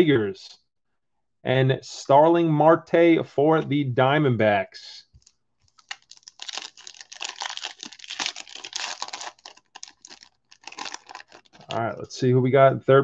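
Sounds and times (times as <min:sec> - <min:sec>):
foil wrapper crinkling and tearing: 0:05.7 - 0:11.8.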